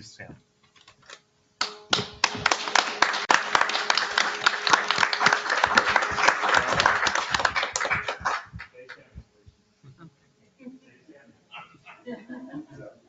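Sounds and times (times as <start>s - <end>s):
crowd applauding: 1.6s - 9.1s.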